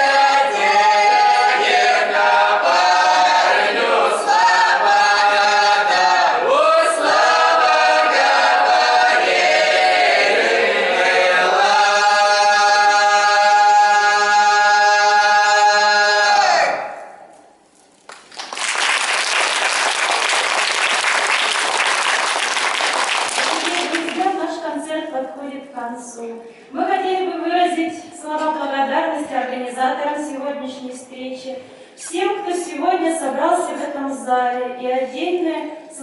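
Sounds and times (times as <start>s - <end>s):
group singing unaccompanied: 0.0s - 16.8s
audience applauding: 18.1s - 24.2s.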